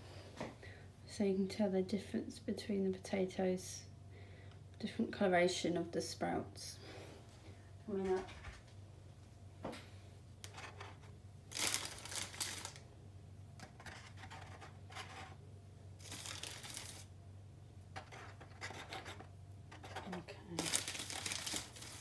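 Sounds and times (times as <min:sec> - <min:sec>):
faint low hum: 0:00.0 - 0:22.0
plastic bag rustling: 0:10.5 - 0:12.8, 0:16.0 - 0:17.1, 0:20.5 - 0:22.0.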